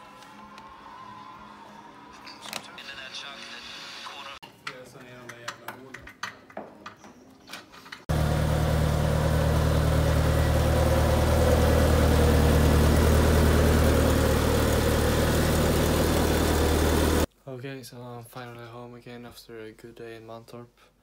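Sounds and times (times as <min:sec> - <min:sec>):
race car engine idling: 0:08.1 - 0:17.3.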